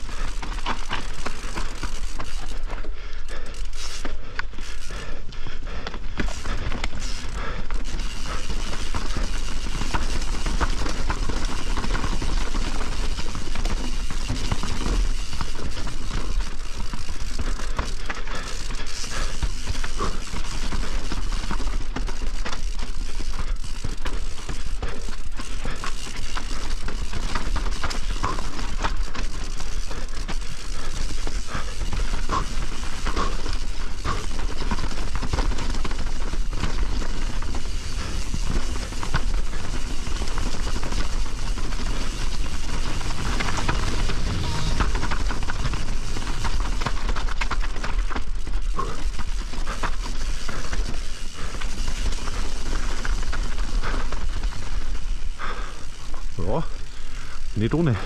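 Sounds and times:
bike chain and frame rattling: 0:00.0 - 0:58.0
bike tyres crackling over dirt: 0:00.0 - 0:58.0
low rumble: 0:42.5 - 0:46.9.

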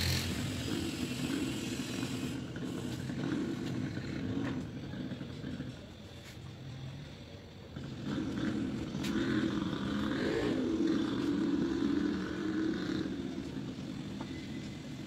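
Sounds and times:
motor vehicle engine passing: 0:00.0 - 0:05.7, 0:07.7 - 0:15.0.

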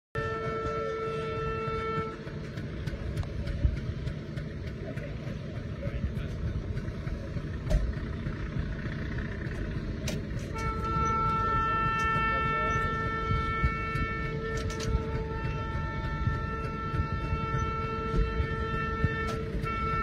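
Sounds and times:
train horn blast: 0:00.2 - 0:03.3, 0:10.4 - 0:20.0
train running rumble: 0:00.2 - 0:20.0
wheels clicking over rail joints: 0:00.2 - 0:20.0.

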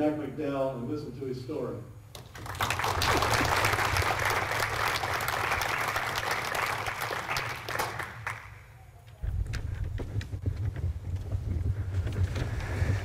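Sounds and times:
audience applauding: 0:02.2 - 0:08.8.

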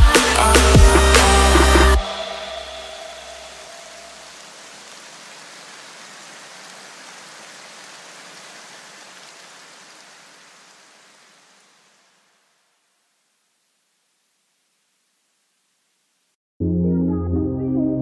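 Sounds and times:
steady hiss of noise: 0:02.0 - 0:16.4.

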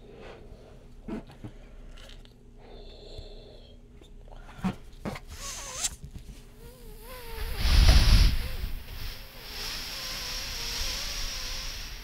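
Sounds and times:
balloon squealing as air escapes: 0:05.4 - 0:06.0, 0:09.8 - 0:12.0
loud rush of air: 0:07.0 - 0:12.0.

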